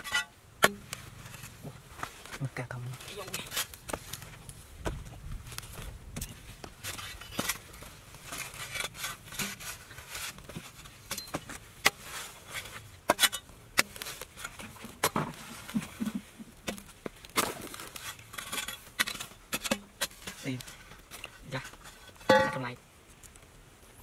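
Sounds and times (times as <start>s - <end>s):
soil clods crumbling: 0.0s - 22.8s
spade digging into dry clay: 6.2s - 22.7s.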